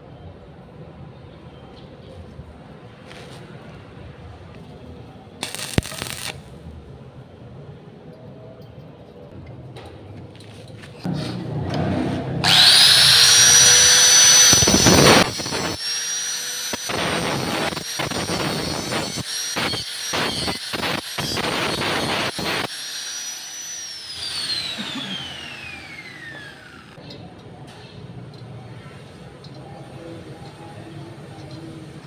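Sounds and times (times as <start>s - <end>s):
grinder grinding steel: 5.4s - 6.4s, 12.2s - 27.0s
angle grinder whining: 12.4s - 27.0s.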